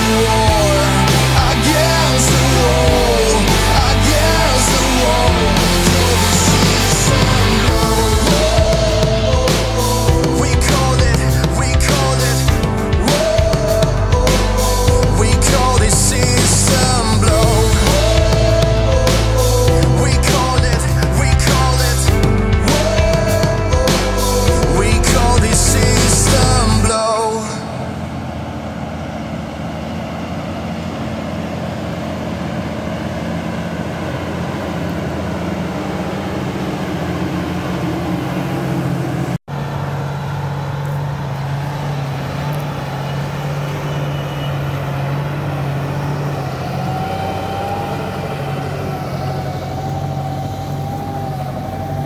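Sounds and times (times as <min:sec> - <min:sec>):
tractor diesel engine running: 0:00.0 - 0:52.0
thin high whine: 0:42.0 - 0:52.0.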